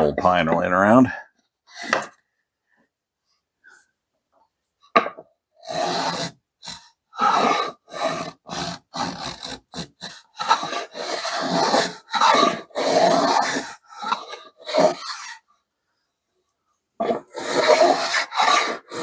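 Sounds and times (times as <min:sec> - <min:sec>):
hand plane scraping wood: 0:05.6 - 0:15.4, 0:17.0 - 0:19.0.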